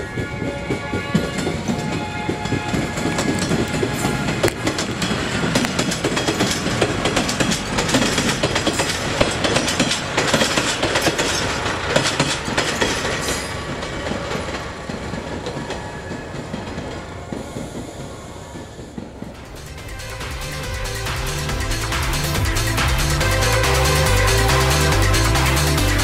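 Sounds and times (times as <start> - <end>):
train running noise: 0.0 - 26.0
wheels clacking over rail joints: 0.0 - 26.0.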